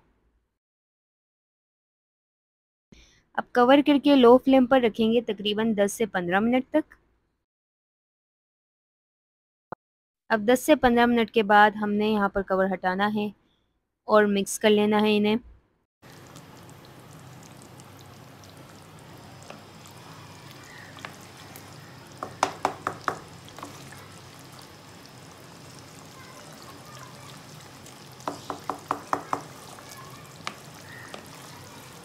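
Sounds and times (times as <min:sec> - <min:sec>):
gravy simmering: 0:16.0 - 0:32.0
spatula stirring in a pan: 0:16.1 - 0:32.0
spatula knocking on pan: 0:22.1 - 0:23.8, 0:28.2 - 0:29.8, 0:30.4 - 0:31.4.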